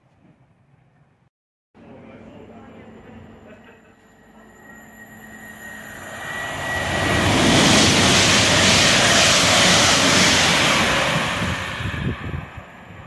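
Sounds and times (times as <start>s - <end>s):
train passing at speed: 2.8s - 13.0s.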